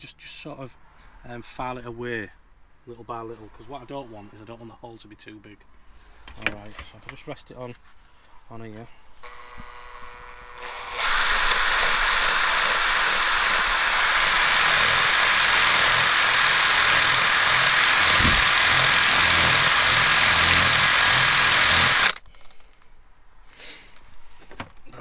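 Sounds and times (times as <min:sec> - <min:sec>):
cordless drill whining: 0:09.2 - 0:22.2
drill bit grinding plastic: 0:09.2 - 0:22.5.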